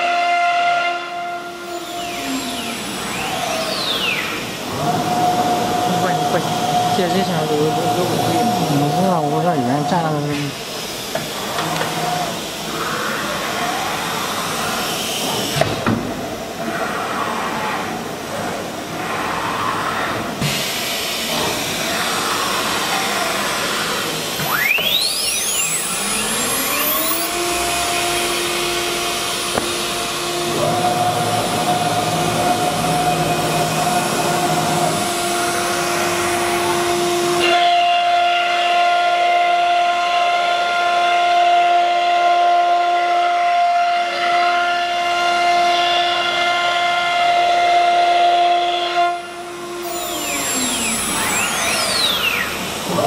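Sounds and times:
router spindle whine: 0:00.0 - 0:15.6, 0:16.3 - 0:53.0.

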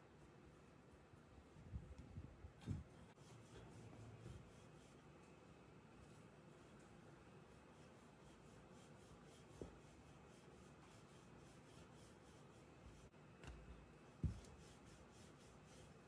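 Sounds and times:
rolling pin rubbing over dough: 0:03.1 - 0:05.1, 0:06.2 - 0:13.2, 0:14.1 - 0:16.0.

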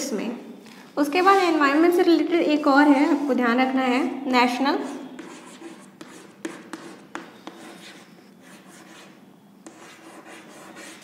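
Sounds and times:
chalk scratching on blackboard: 0:05.0 - 0:11.0
chalk tapping on board: 0:05.2 - 0:11.0.

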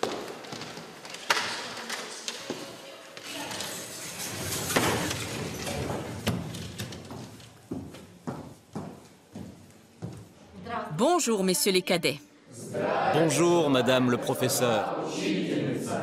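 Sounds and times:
chairs scraping and knocking: 0:03.4 - 0:10.2
shoes shuffling on wooden floor: 0:07.0 - 0:10.4.

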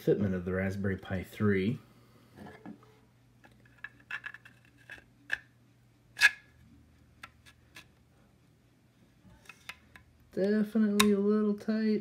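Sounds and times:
plastic clicks and scrapes: 0:03.4 - 0:05.5.

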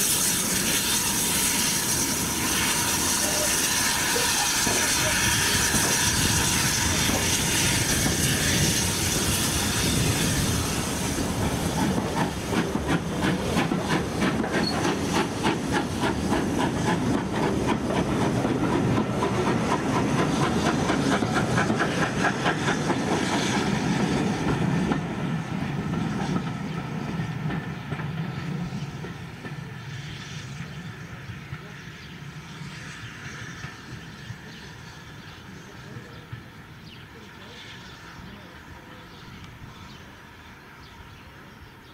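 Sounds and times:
train wheels clicking over rail joints: 0:04.1 - 0:29.7.

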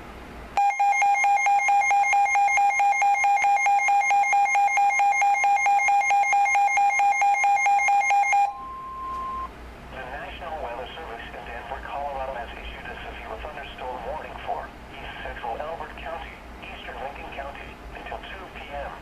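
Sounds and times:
fast electronic alarm beeping: 0:00.6 - 0:09.5
steady warning tone: 0:00.6 - 0:09.5.

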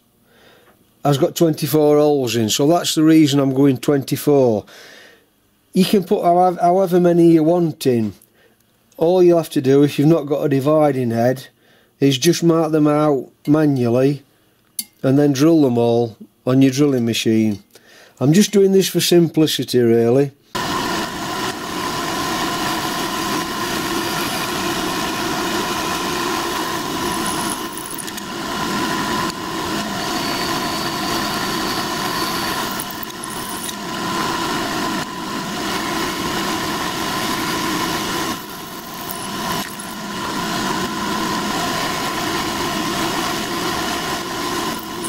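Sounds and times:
milling machine drilling: 0:20.6 - 0:45.0.

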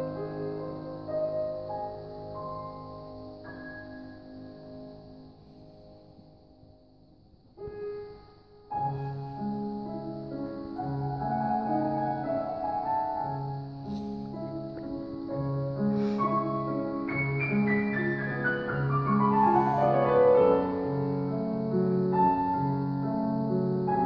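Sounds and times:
grand piano playing: 0:00.0 - 0:07.0, 0:07.6 - 0:24.0.

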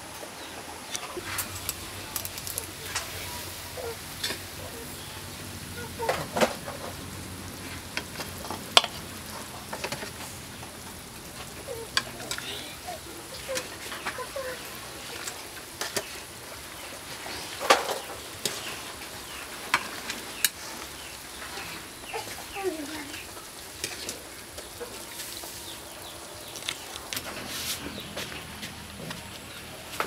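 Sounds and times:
hen clucking: 0:00.9 - 0:10.3, 0:11.4 - 0:15.5, 0:20.3 - 0:29.7.

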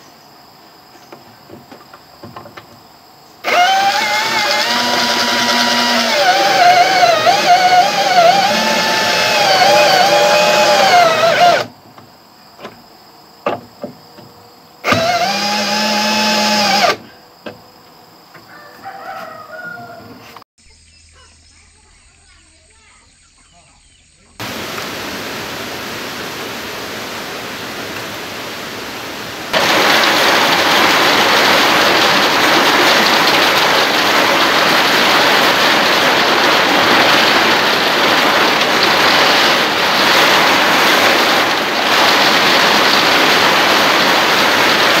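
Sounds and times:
heavy rain pouring: 0:03.4 - 0:11.7, 0:24.4 - 0:45.0.

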